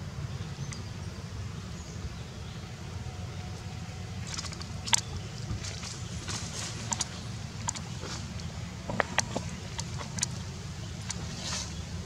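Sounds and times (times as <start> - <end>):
low outdoor rumble: 0.0 - 12.0
crackles of dry leaves: 3.1 - 12.0.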